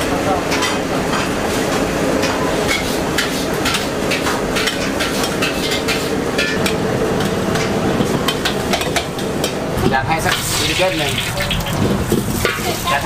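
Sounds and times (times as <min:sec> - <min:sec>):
frying sizzling: 0:00.0 - 0:13.0
metal utensils clinking on pans: 0:02.2 - 0:09.6, 0:12.4 - 0:13.0.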